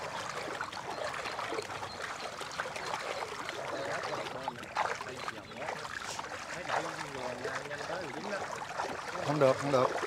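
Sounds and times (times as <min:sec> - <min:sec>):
water trickling and splashing: 0:00.0 - 0:10.0.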